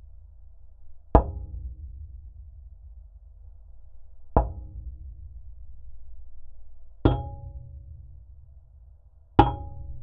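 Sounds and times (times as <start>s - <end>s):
low steady rumble: 0.0s - 10.0s
hollow ringing knock on metal: 1.2s - 1.6s, 4.4s - 4.9s, 7.0s - 8.0s, 9.4s - 10.0s.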